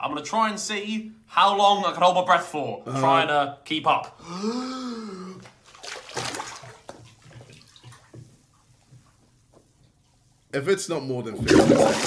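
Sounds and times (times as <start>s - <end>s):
bath water splashing and bubbling: 5.4s - 9.3s, 11.4s - 12.0s.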